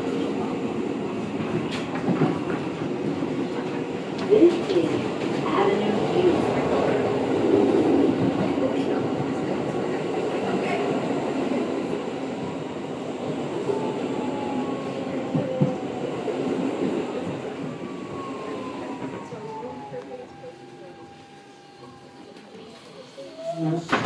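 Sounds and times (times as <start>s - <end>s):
train motor whine: 13.7s - 22.7s.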